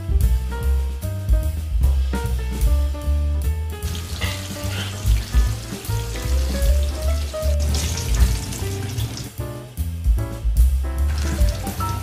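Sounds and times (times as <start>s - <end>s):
music with heavy bass: 0.0s - 12.0s
fish sizzling in hot oil: 3.8s - 9.4s, 11.1s - 12.0s.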